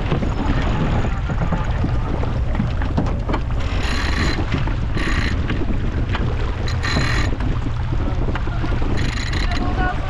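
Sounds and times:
water rushing along hull: 0.0s - 10.0s
wind buffeting microphone: 0.0s - 10.0s.

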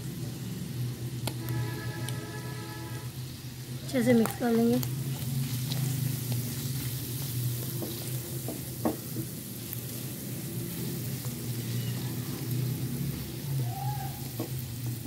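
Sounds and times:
vegetables sizzling in oil: 0.0s - 15.0s
spatula scraping and tapping pan: 7.6s - 9.4s.

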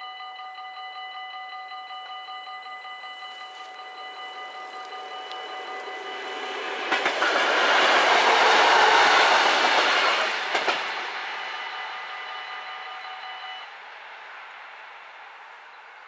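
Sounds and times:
crossing warning bells ringing: 0.0s - 14.5s
electric train passing: 0.1s - 16.0s
wheels knocking on rail joints: 3.1s - 11.1s.

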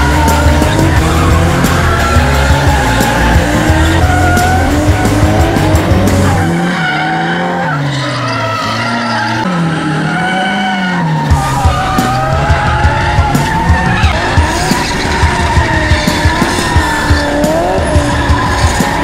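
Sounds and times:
bass-heavy music beat: 0.0s - 6.7s, 11.2s - 19.0s
car engines revving: 0.0s - 19.0s
tyres squealing: 0.0s - 19.0s.

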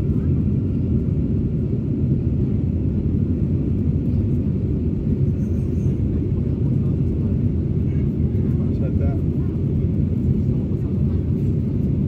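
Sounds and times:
jet engines rumbling in cabin: 0.0s - 12.0s.

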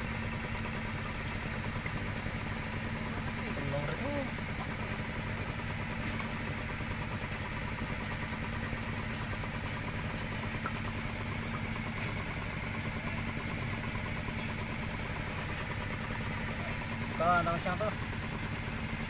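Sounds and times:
water splashing in basin: 0.0s - 3.4s, 9.0s - 11.7s
small engine idling: 0.0s - 19.0s.

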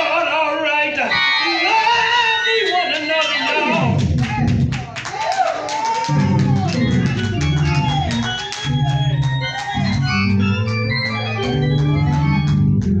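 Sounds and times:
organ playing slow chords: 6.1s - 13.0s.

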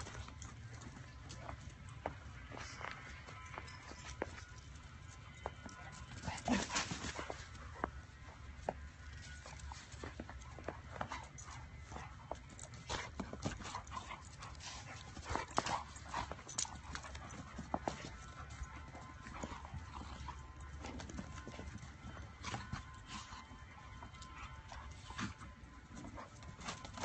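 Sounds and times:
dogs play-fighting scuffling: 0.0s - 27.0s
dog noises: 5.6s - 27.0s.

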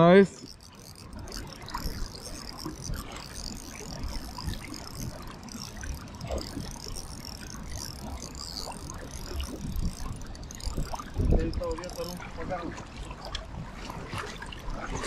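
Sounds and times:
wind buffeting on microphone: 0.0s - 15.0s.

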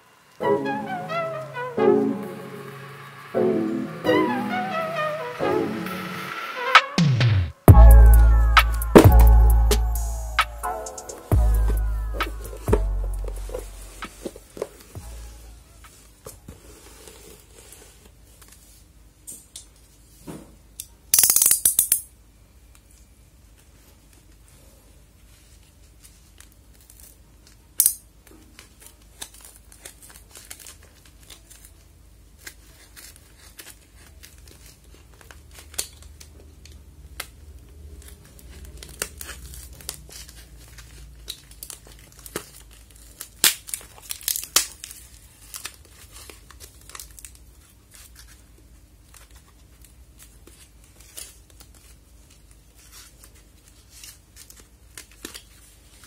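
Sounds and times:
packing tape crinkling and tearing: 25.6s - 56.0s
loud tape rips: 37.2s - 47.4s.

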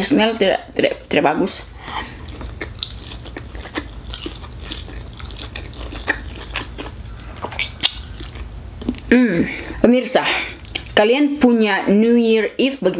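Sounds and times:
steady low hum: 0.0s - 12.9s
person chewing noodles: 1.8s - 9.1s.

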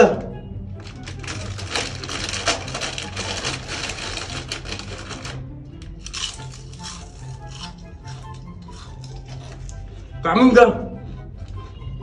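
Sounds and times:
background music with bass line: 0.0s - 12.0s
dense crackling clicks: 0.8s - 6.8s.

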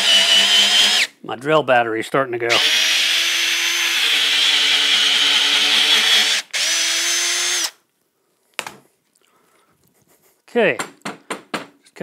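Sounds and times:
cordless drill boring into wood: 0.0s - 1.1s, 2.5s - 7.8s
knock: 10.8s - 11.8s.

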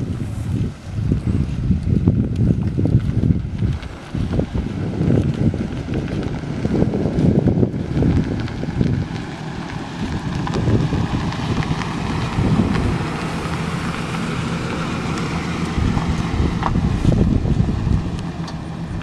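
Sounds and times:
pickup engine idling: 0.0s - 19.0s
wind buffeting microphone: 0.0s - 19.0s.

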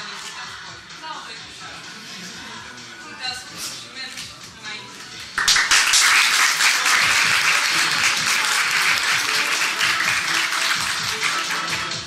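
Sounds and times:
students applauding: 5.4s - 12.0s.

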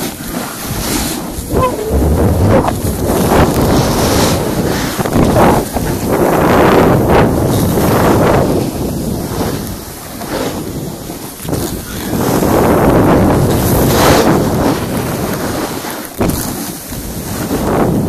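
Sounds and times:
snowboard sliding over snow: 0.0s - 18.0s
wind buffeting microphone: 0.0s - 18.0s
sudden jolt: 1.5s - 3.9s.

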